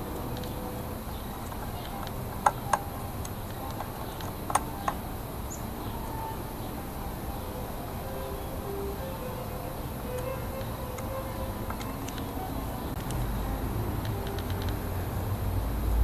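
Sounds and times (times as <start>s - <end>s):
faint background hiss: 0.0s - 16.0s
sharp small clicks: 0.1s - 5.6s, 10.1s - 13.3s, 14.0s - 14.8s.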